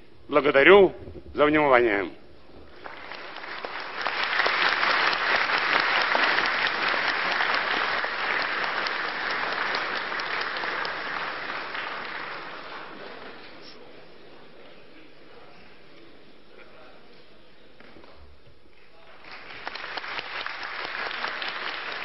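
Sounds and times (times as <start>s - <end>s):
audience applauding: 2.7s - 13.7s, 19.0s - 22.0s.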